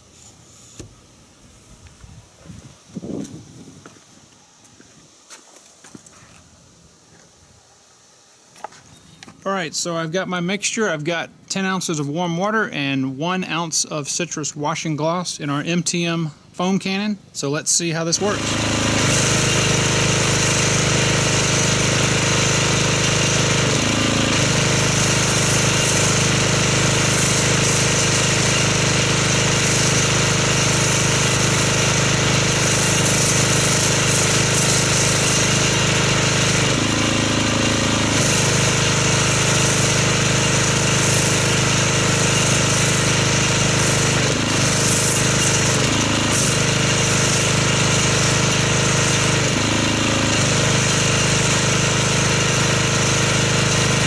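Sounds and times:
pressure washer pump drone: 0:17.7 - 0:54.0
foam spray hissing: 0:18.2 - 0:54.0.

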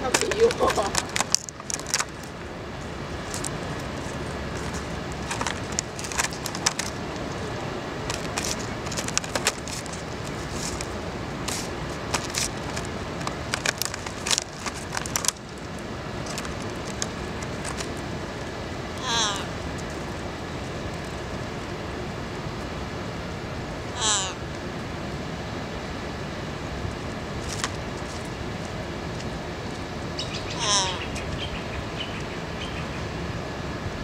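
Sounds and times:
outdoor background noise: 0:00.0 - 0:34.0
bird pecking plastic box: 0:04.6 - 0:07.0, 0:08.0 - 0:15.4.

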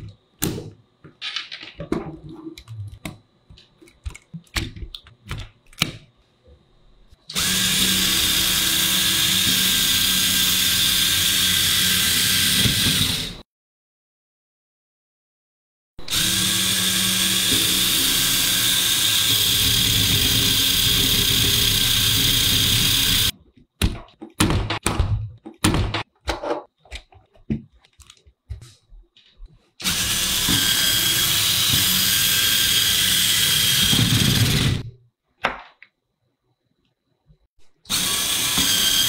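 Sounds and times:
plastic parts clicking and knocking: 0:00.0 - 0:06.1
toy car motors whining: 0:16.1 - 0:23.3, 0:29.8 - 0:34.8.

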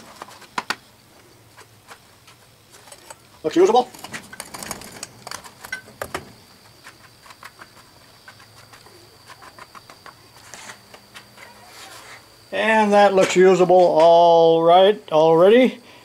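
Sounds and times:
gritty scraping of sand: 0:01.6 - 0:14.0.

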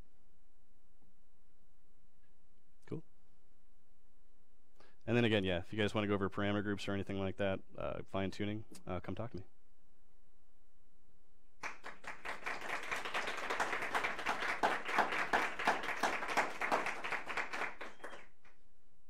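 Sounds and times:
audience applauding: 0:11.6 - 0:18.4.

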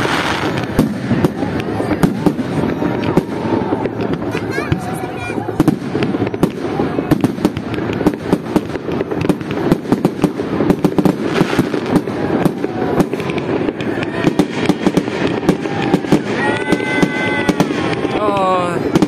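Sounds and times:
fireworks bangs and crackles: 0:00.0 - 0:19.0.

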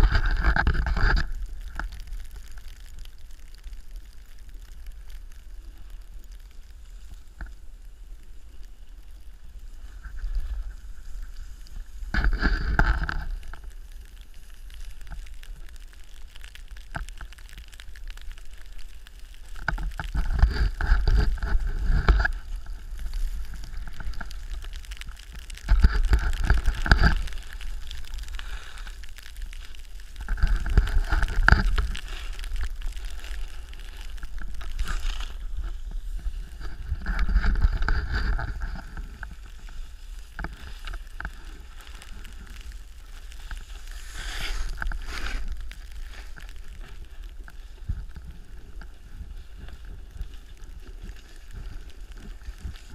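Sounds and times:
snowboard sliding over snow: 0:00.0 - 0:52.9
snowboard edge scraping: 0:34.7 - 0:40.8, 0:42.6 - 0:47.0.

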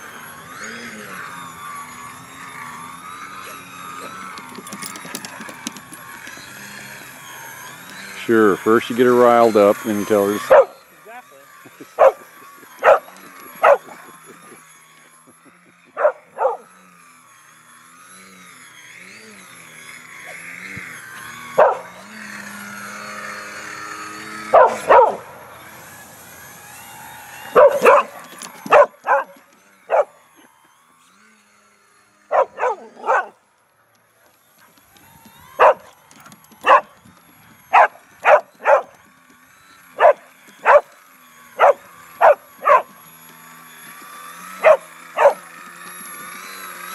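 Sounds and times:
model airplane motor whine: 0:00.0 - 0:46.9
dog barking excitedly: 0:10.4 - 0:10.8, 0:12.0 - 0:14.0, 0:16.0 - 0:16.7, 0:21.6 - 0:22.0, 0:24.5 - 0:25.3, 0:27.6 - 0:30.1, 0:32.3 - 0:33.4, 0:35.6 - 0:35.9, 0:36.6 - 0:36.9, 0:37.7 - 0:39.0, 0:40.0 - 0:40.9, 0:41.6 - 0:42.9, 0:44.6 - 0:45.4.

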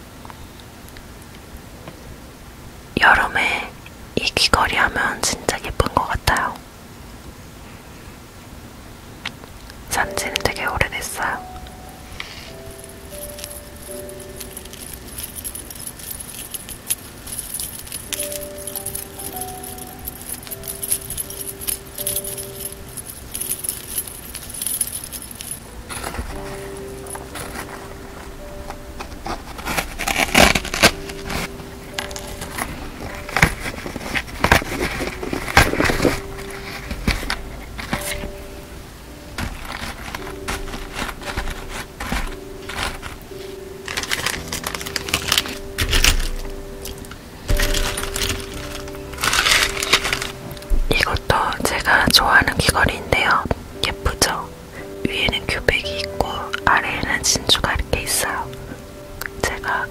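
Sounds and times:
quiet background music: 0:00.0 - 0:59.9
earrings clicking and jingling: 0:09.9 - 0:58.6
small metal parts clinking: 0:12.8 - 0:27.8, 0:29.0 - 0:38.4, 0:39.4 - 0:43.2, 0:43.8 - 0:50.7.

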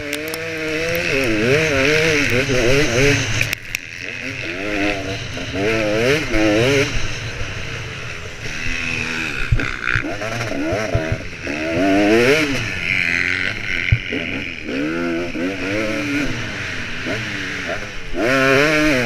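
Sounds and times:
motorbike engine revving: 0:00.0 - 0:19.0.

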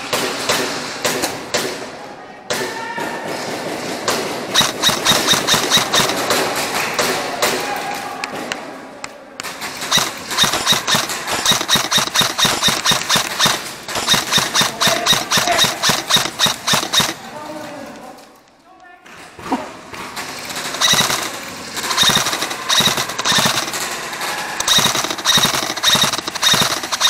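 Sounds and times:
airsoft gun firing full auto: 0:04.5 - 0:07.2, 0:09.6 - 0:17.3, 0:20.2 - 0:27.0.

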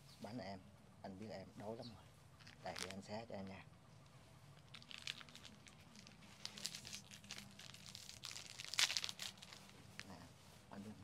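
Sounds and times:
plastic wrapper crinkling: 0:02.4 - 0:03.0, 0:04.6 - 0:10.2.

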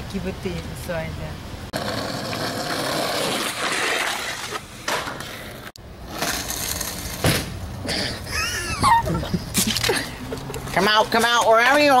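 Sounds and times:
skateboard wheels rolling on asphalt: 0:01.7 - 0:08.0.

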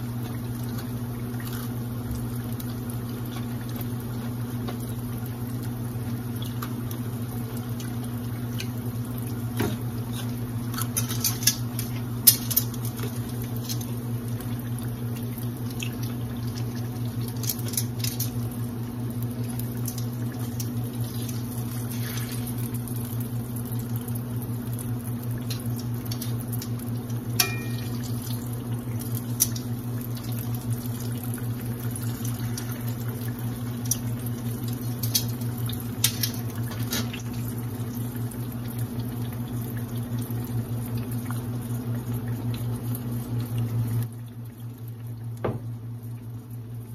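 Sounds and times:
onion rings sizzling in oil: 0:17.2 - 0:37.5
metal tongs clicking on pan: 0:27.4 - 0:27.9.

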